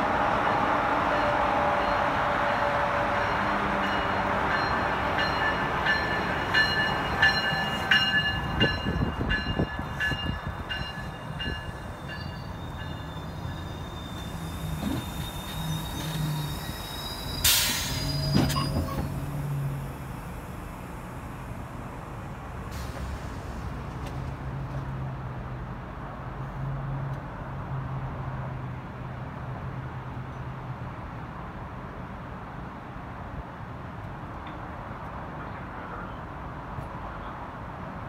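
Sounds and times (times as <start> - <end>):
train cars rumbling: 0.0 - 25.9
train brakes squealing: 1.1 - 19.9
air brake hiss: 14.0 - 19.2, 22.7 - 23.7.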